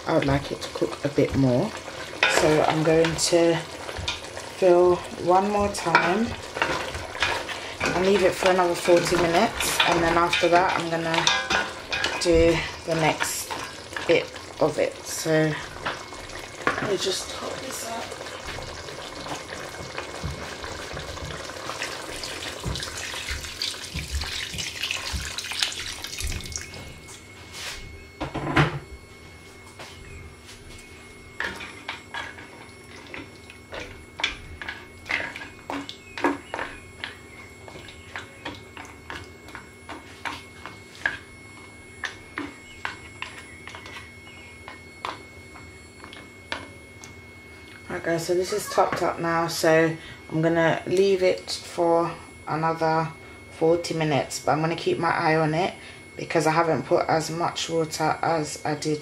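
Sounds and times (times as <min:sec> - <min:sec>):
water pouring into a pot: 0:12.6 - 0:26.8.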